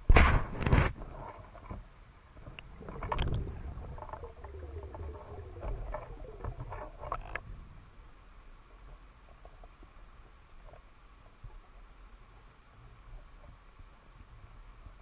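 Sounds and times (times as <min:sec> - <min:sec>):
underwater clicks and knocks: 0:02.4 - 0:07.5
low underwater rumble: 0:02.4 - 0:09.8.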